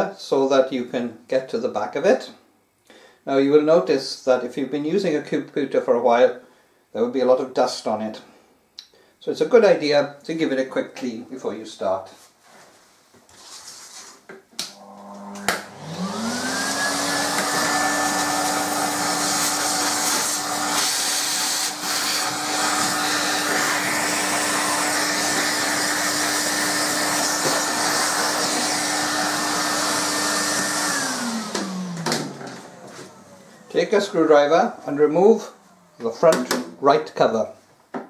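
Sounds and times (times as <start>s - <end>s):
vacuum cleaner motor whine: 14.7s - 36.4s.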